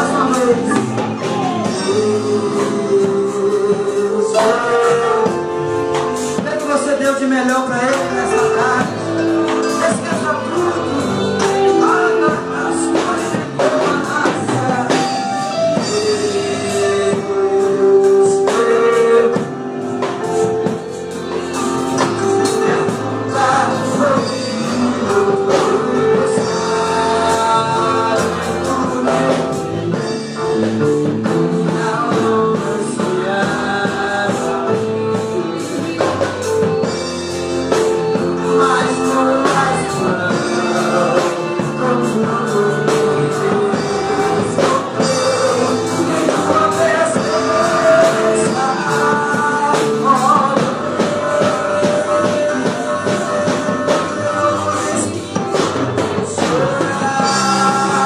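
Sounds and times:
man singing into a microphone: 0.0s - 58.0s
musical accompaniment with drums: 0.0s - 58.0s.

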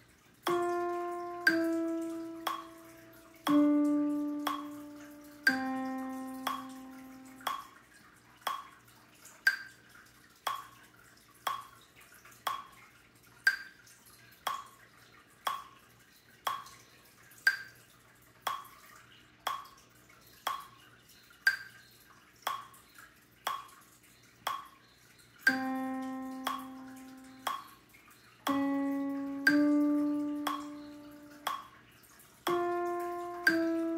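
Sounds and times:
metronome clicking: 0.4s - 7.7s, 9.4s - 9.7s, 13.4s - 13.7s, 25.4s - 27.8s, 28.4s - 31.7s, 32.5s - 33.9s
pitched notes melody: 0.5s - 7.6s, 25.5s - 27.6s, 28.5s - 31.6s, 32.5s - 33.9s.

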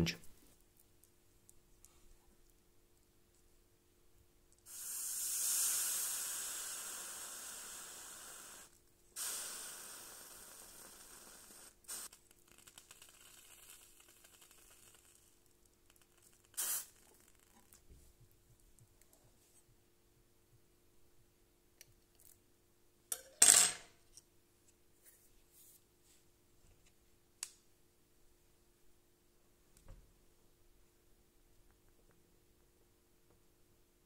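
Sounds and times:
soldering iron hissing on wet sponge: 4.6s - 15.1s.

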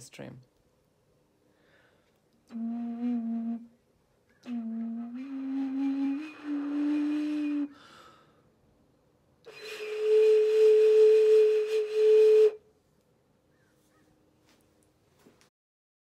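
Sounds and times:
breathy vessel flute notes: 2.4s - 3.8s, 4.4s - 8.4s, 9.5s - 12.6s.

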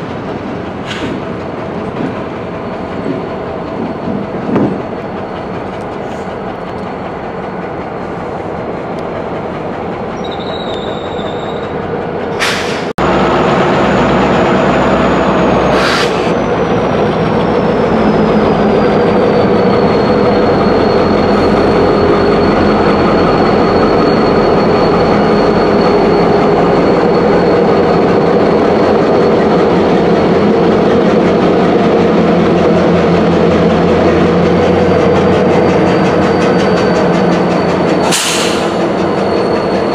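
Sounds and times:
train wheels rumbling on rails: 0.0s - 39.9s
high wheel squeal: 10.0s - 39.9s.

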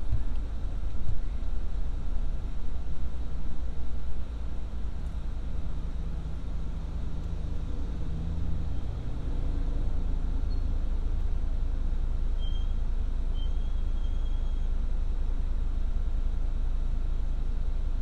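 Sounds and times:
idling car engines and slow traffic: 0.0s - 18.0s
faint high squeaks: 12.4s - 14.7s.

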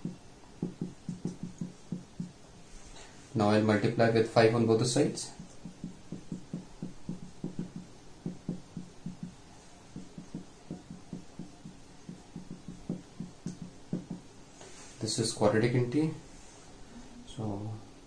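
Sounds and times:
marker writing on whiteboard: 0.0s - 2.4s, 5.0s - 14.8s.

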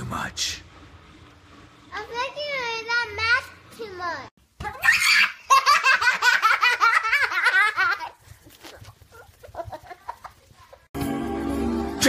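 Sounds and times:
child giggling: 5.1s - 8.2s, 8.8s - 10.9s.

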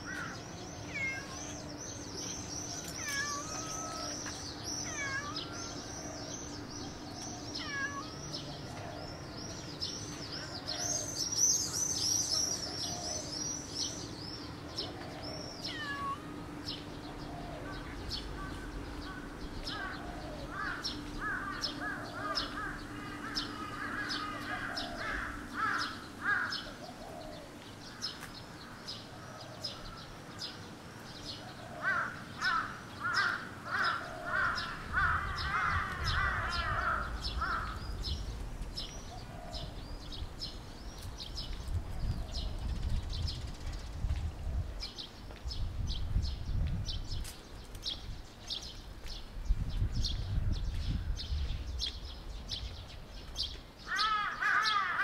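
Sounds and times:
birds chirping: 0.0s - 55.0s
harsh repeated bird calls: 53.8s - 55.0s.

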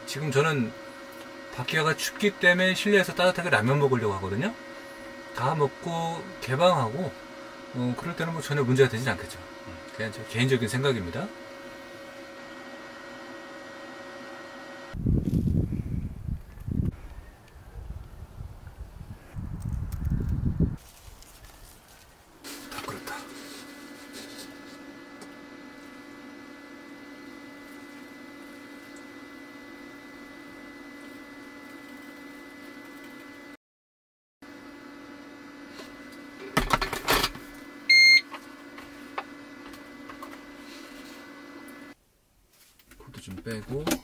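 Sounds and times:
short loud beep: 37.9s - 38.2s.

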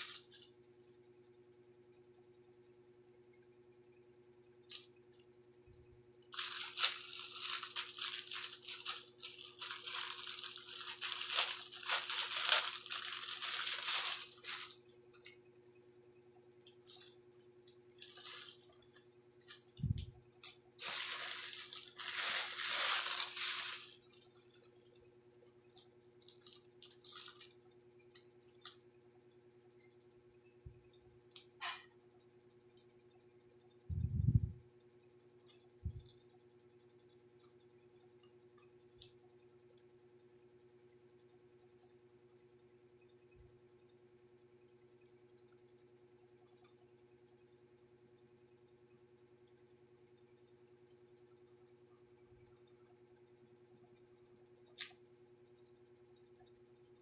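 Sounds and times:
plastic packaging crinkling: 0.0s - 0.5s, 6.3s - 15.3s, 16.7s - 17.2s, 18.0s - 20.0s, 20.8s - 25.0s, 26.2s - 27.5s
faint steady hum: 0.0s - 57.0s.

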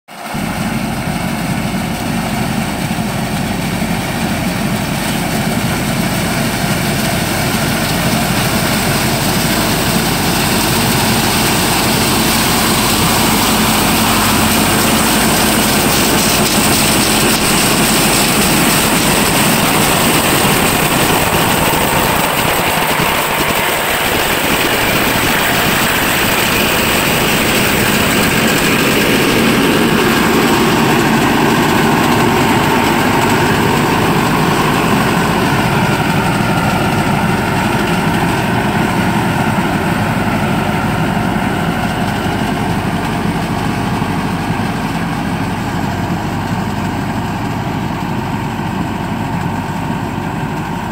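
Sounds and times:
harvester engine and machinery: 0.1s - 50.9s.

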